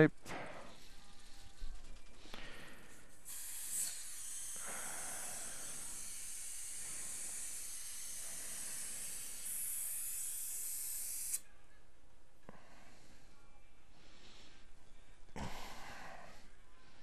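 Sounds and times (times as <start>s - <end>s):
dental equipment hissing: 2.4s - 11.4s.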